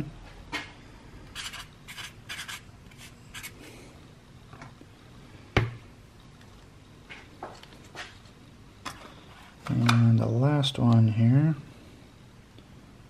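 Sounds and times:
marker scratching on cardboard: 0:01.4 - 0:03.6.

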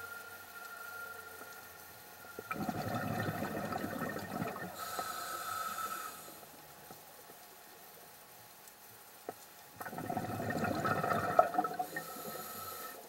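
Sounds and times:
regulator inhalation hiss: 0:00.0 - 0:02.5, 0:04.6 - 0:06.6, 0:11.7 - 0:13.0
exhaled bubbles underwater: 0:02.3 - 0:05.0, 0:09.8 - 0:12.9.

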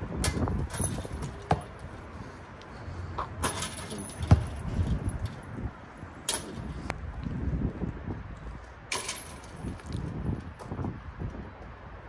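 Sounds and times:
basketball thumps on court: 0:01.1 - 0:01.8, 0:04.2 - 0:04.6.

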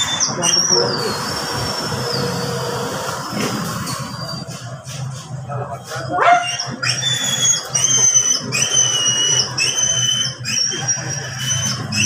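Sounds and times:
dog whining: 0:05.9 - 0:12.0.

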